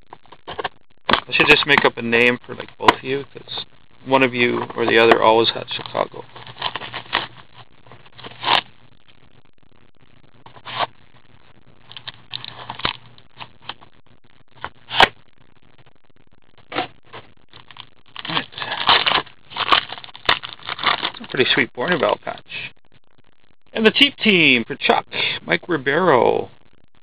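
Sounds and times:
cardboard scraping and rustling: 6.3 - 7.4.

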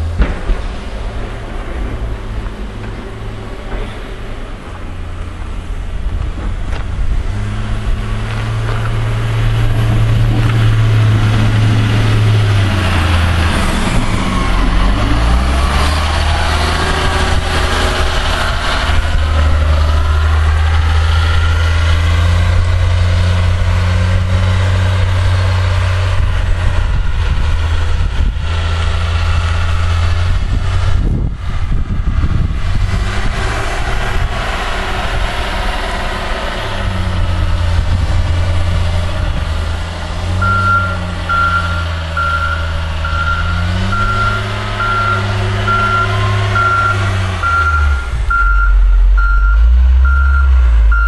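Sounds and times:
wheel loader diesel engine: 0.0 - 51.0.

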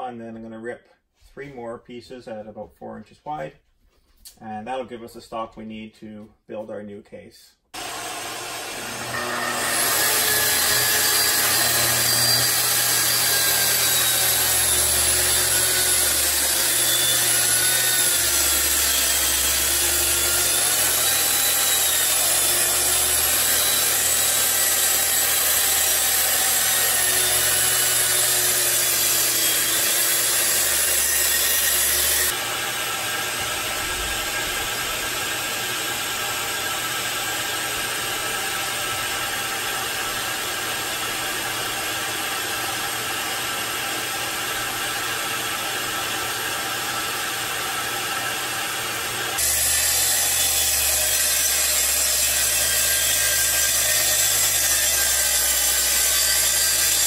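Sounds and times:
dust extractor humming: 7.8 - 50.1
track saw cutting plywood: 7.8 - 57.0.

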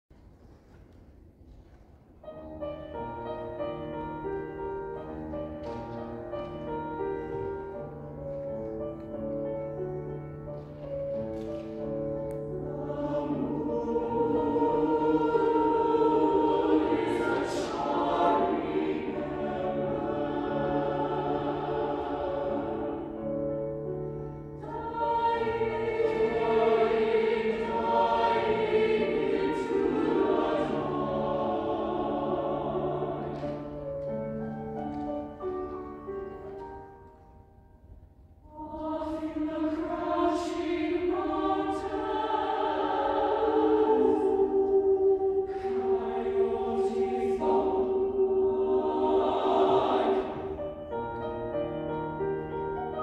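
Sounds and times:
choir singing slow choral piece: 2.2 - 53.0.

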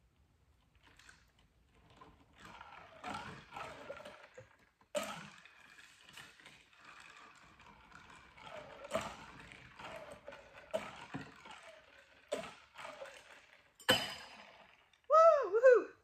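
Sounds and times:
glass bottle cracking: 13.8 - 15.1.

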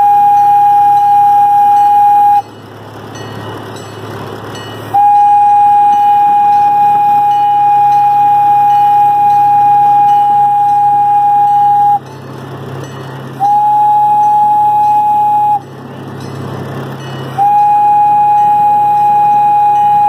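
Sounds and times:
miniature train whistle blasts: 0.0 - 2.5, 4.9 - 12.0, 13.4 - 15.7, 17.3 - 20.0
train running rumble: 0.0 - 20.0.

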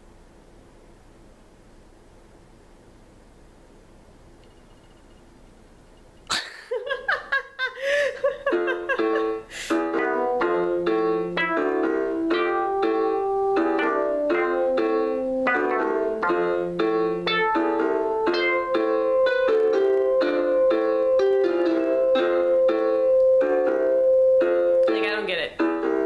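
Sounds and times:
plucked keyboard riff: 8.5 - 26.0
sliding pitch sounds: 8.7 - 24.0.

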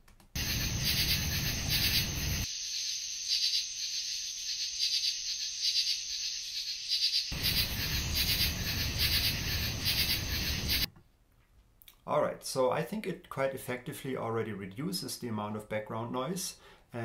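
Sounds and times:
animal chorus chirping: 0.4 - 2.5, 6.9 - 10.9
low traffic rumble: 7.4 - 10.9.

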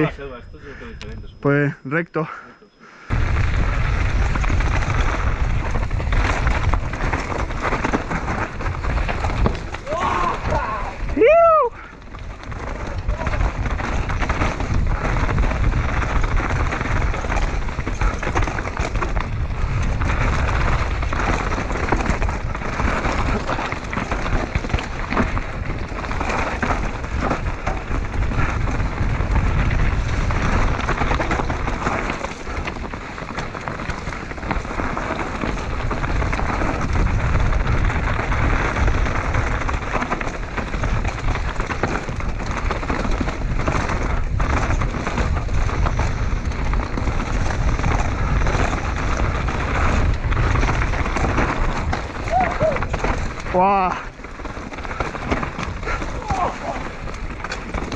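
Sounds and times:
wind on microphone: 3.1 - 32.9
bike tyres crunching over stones: 3.1 - 57.9
bike chain rattling: 3.6 - 57.9.

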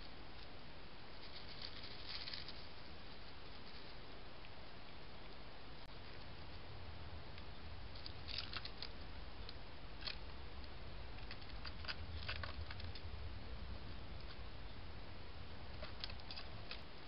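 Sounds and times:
rustling in dry leaves: 0.0 - 4.2
low hum: 0.0 - 17.0
microphone hiss: 0.0 - 17.0.

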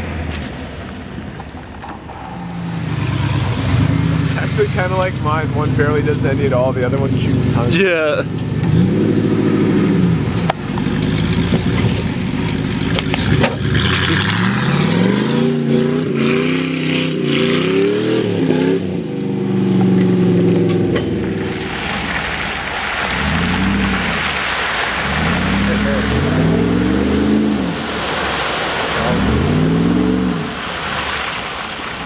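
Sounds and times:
truck engines revving hard: 1.6 - 32.0
hiss of thrown mud and water: 21.3 - 32.0.

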